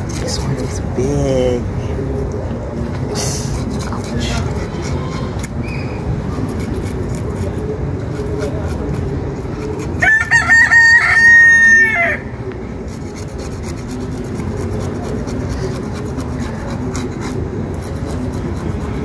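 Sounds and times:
knife scraping fish scales: 3.1s - 5.6s, 6.3s - 10.0s, 12.9s - 19.0s
rooster crowing: 10.0s - 12.3s.

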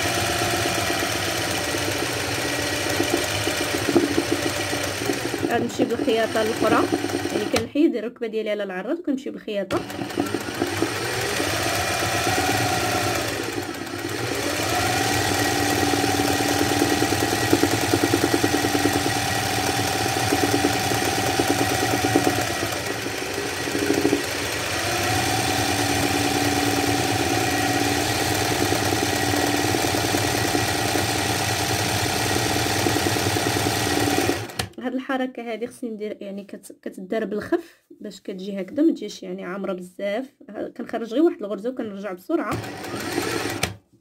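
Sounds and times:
sewing machine running fast: 0.0s - 7.7s, 9.7s - 34.7s, 42.5s - 43.8s.

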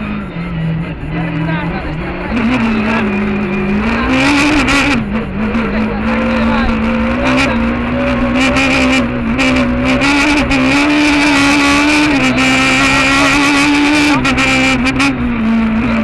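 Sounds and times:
car engine at high revs: 0.0s - 16.0s.

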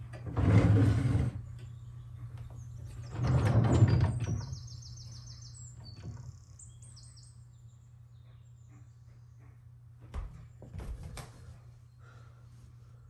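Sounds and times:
wooden drawer sliding: 0.2s - 1.4s.

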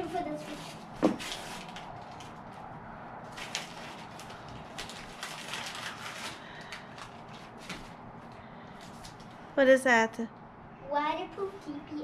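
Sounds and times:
wrapping paper crinkling and tearing: 0.0s - 2.4s, 3.3s - 8.0s.

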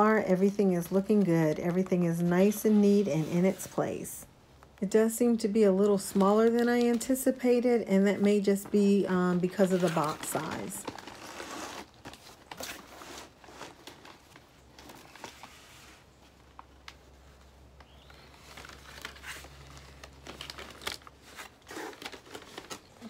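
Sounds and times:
cardboard and paper crinkling: 5.2s - 23.0s.

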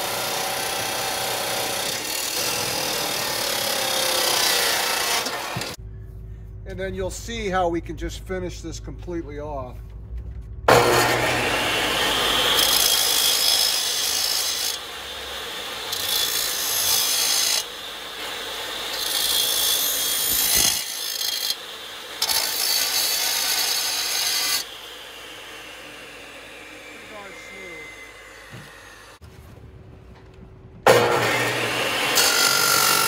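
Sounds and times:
chop saw whining: 0.0s - 5.8s, 10.7s - 29.2s, 30.9s - 33.0s
steel grinding against blade: 18.9s - 21.6s.

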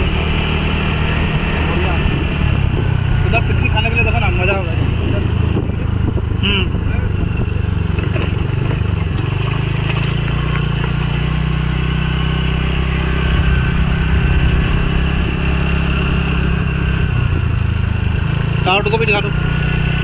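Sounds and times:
motor scooter engine running: 0.0s - 20.0s
rushing noise: 12.6s - 17.4s.

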